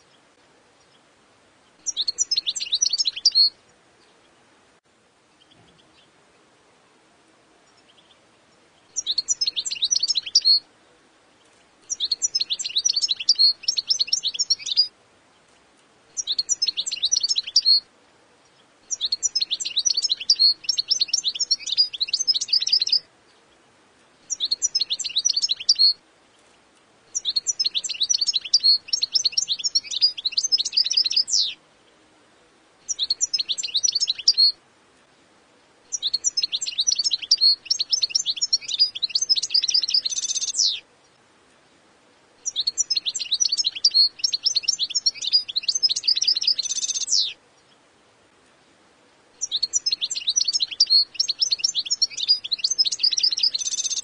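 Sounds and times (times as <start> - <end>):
goldfinch twittering song: 1.7 - 4.3, 7.7 - 10.6, 11.4 - 23.5, 24.2 - 26.4, 27.1 - 31.6, 32.9 - 34.6, 35.9 - 41.2, 42.4 - 47.8, 49.4 - 54.0.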